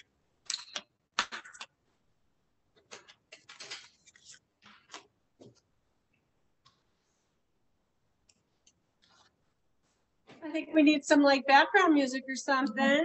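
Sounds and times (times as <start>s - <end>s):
paper plates rustling: 2.8s - 5.7s.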